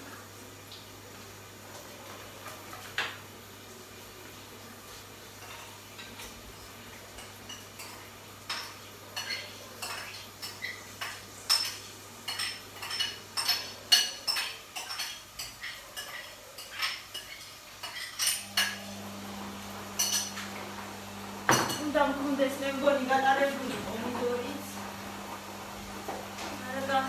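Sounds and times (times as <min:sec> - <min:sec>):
metal utensils clinking on dishes: 0:05.4 - 0:20.6.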